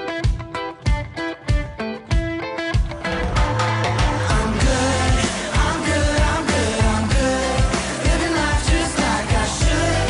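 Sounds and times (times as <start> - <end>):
steady drum beat: 0.2 - 10.0
pop song singing: 2.9 - 10.0.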